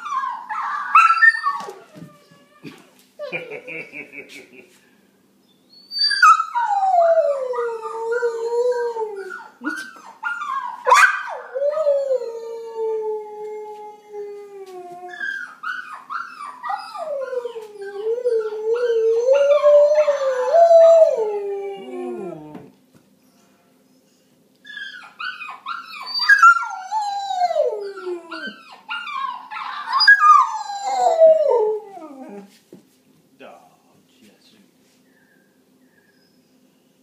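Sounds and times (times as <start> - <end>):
dog howling: 14.0 - 22.7.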